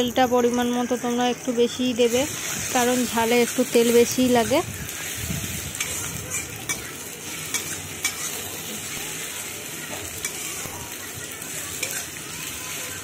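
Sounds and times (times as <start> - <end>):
vegetables sizzling in oil: 0.0 - 13.0
metal spatula stirring: 2.0 - 13.0
spatula clinking against pan: 5.8 - 8.4.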